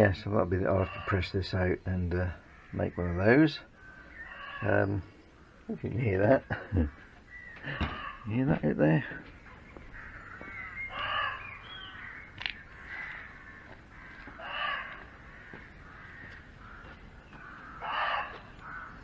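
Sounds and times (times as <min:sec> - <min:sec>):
deer barking: 0:10.9 - 0:11.5, 0:14.2 - 0:15.2, 0:17.6 - 0:19.0.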